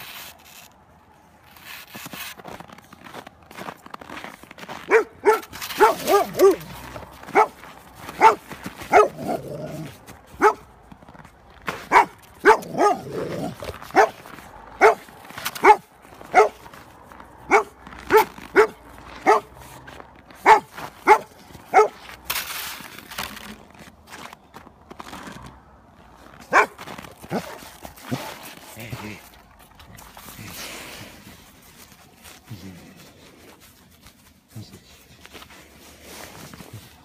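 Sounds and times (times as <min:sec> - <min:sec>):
dog barking: 0:04.9 - 0:10.7, 0:11.8 - 0:16.7, 0:17.5 - 0:19.6, 0:20.4 - 0:22.0, 0:26.5 - 0:28.3.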